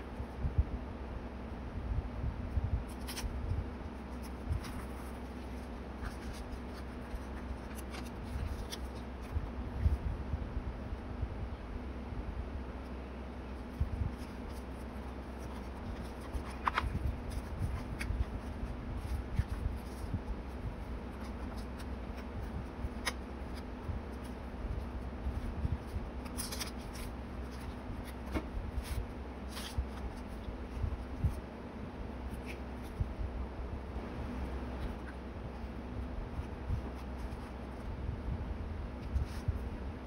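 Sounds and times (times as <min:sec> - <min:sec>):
paper sliding and rustling: 0:13.7 - 0:20.1, 0:25.2 - 0:30.4.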